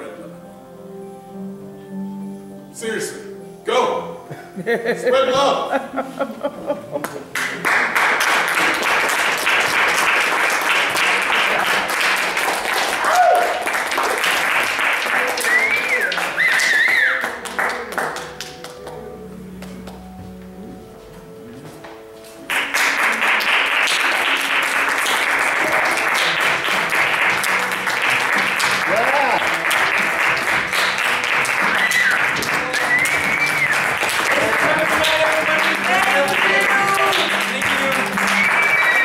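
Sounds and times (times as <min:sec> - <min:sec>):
held music chord: 0:00.0 - 0:08.5, 0:17.2 - 0:38.4
audience applauding: 0:06.8 - 0:20.0, 0:22.4 - 0:39.0.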